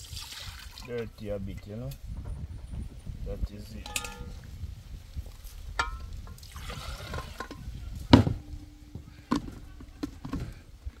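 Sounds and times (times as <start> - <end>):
liquid pouring and trickling: 0.0 - 1.1, 5.8 - 7.8.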